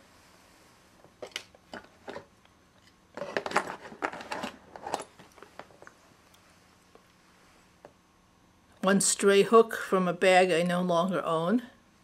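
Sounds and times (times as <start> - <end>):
small items clicking and rattling: 3.1 - 5.9.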